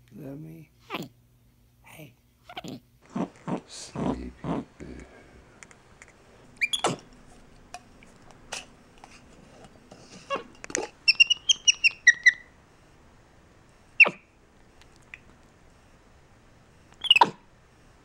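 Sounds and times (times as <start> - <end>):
monkey squeaking and chirping: 6.6 - 7.0, 11.0 - 12.5, 14.0 - 14.2, 17.0 - 17.4.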